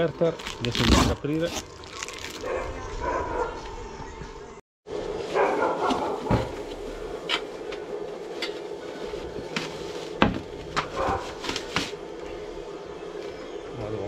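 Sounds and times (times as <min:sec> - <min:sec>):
plastic bag rustling: 0:05.0 - 0:12.2
foam and cardboard handled: 0:05.1 - 0:12.4.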